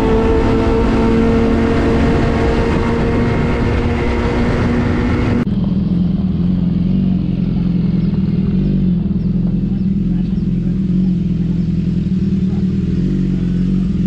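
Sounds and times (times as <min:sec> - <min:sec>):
wind noise on microphone: 0:00.0 - 0:05.5
motorcycle engine idling: 0:00.0 - 0:14.0
motorcycle riding at speed: 0:00.0 - 0:14.0.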